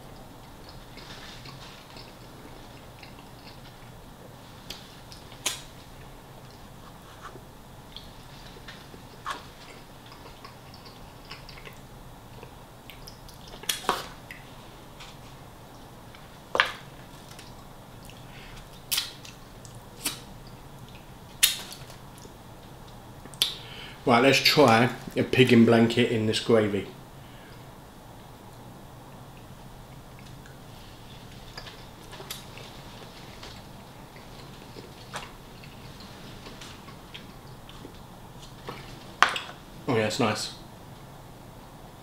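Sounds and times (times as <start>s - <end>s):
person chewing: 0.1s - 23.6s, 29.3s - 39.2s.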